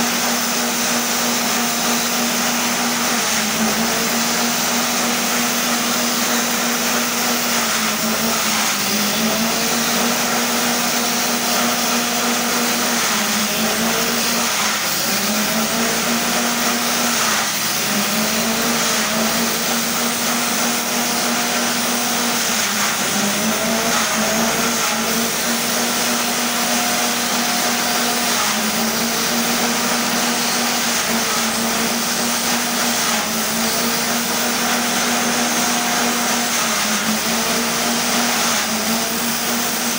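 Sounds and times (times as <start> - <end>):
forage chopper shredding grass: 0.0 - 39.9
small petrol engine running: 0.0 - 39.9.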